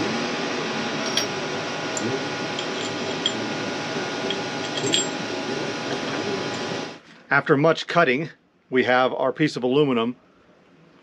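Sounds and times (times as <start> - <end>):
machine hum: 0.0 - 7.0
metal parts clinking: 1.0 - 1.4, 2.0 - 3.5, 4.2 - 5.2.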